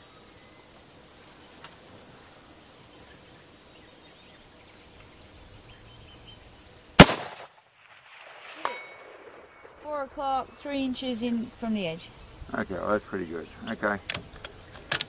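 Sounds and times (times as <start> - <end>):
rifle shot: 7.0 - 9.8
faint bird chirps: 8.6 - 14.9.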